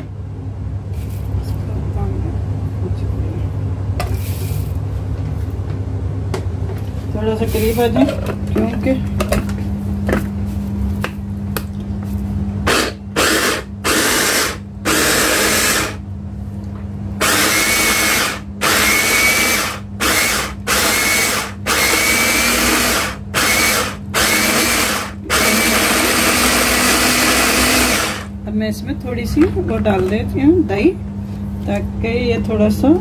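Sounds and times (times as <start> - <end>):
electric food chopper whirring: 12.6 - 16.0, 17.2 - 28.4.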